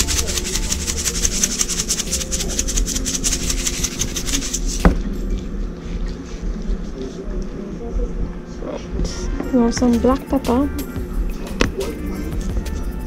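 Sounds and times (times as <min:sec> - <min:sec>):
music with shaker rhythm: 0:00.0 - 0:06.4, 0:09.1 - 0:13.0.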